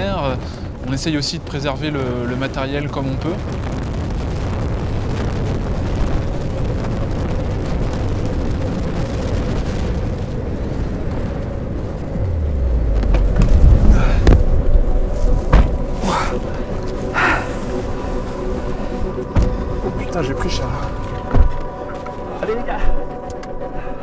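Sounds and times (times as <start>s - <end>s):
gusty wind buffeting microphone: 0.0s - 24.0s
sharp knocks: 15.5s - 15.8s.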